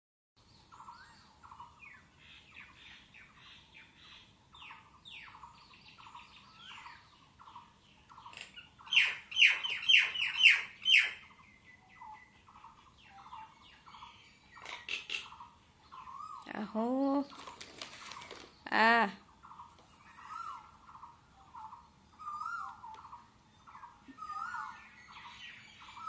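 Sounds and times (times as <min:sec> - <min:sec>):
mynas chirping calls: 0:00.4 - 0:26.0.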